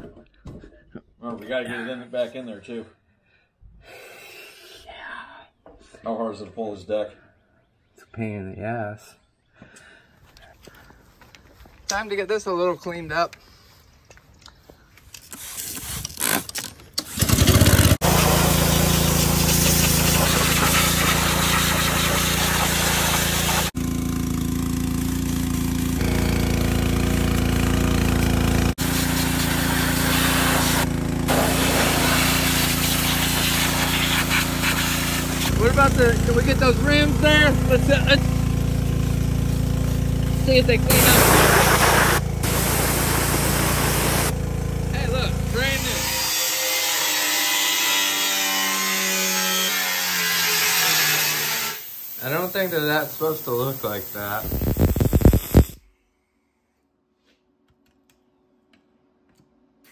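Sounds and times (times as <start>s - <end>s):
pressure washer pump hum: 17.0s - 46.0s
angle grinder grinding metal: 25.2s - 38.4s, 45.0s - 55.8s
water jet hissing on metal: 51.8s - 54.6s.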